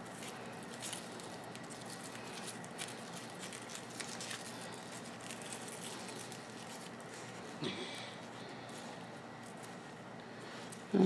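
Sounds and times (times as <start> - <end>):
roots and leaves rustling: 0.0 - 7.6.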